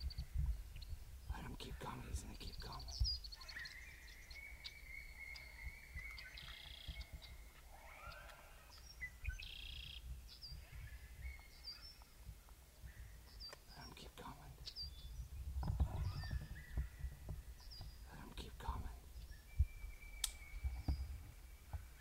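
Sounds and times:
high bird chirps: 2.6 - 12.1, 16.0 - 21.3.

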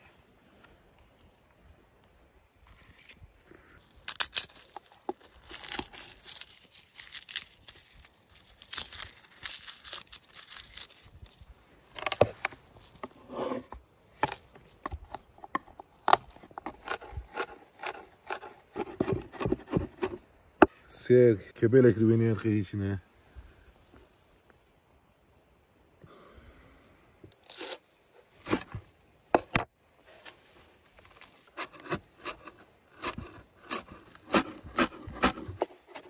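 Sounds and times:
papery garlic skins crackling: 2.7 - 13.2, 26.8 - 28.9, 30.8 - 36.0.

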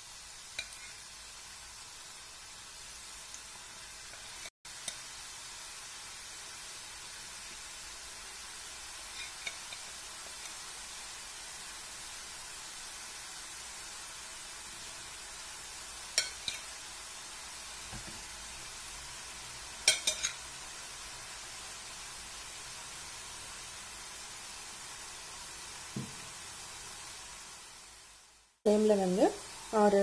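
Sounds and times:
oil sizzling: 0.0 - 30.0
spoon clinking against pan: 16.2 - 16.6, 19.8 - 20.4.

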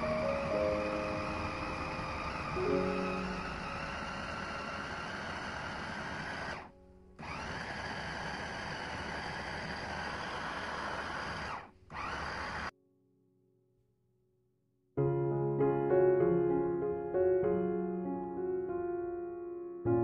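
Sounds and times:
electric meat chopper whining: 0.0 - 12.7.

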